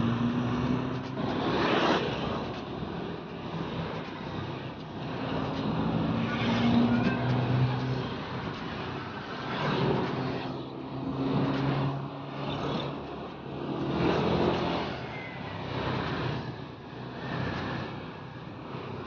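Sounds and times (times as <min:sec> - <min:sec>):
scooter engines passing: 0:00.0 - 0:03.2
road and wind noise: 0:00.0 - 0:19.0.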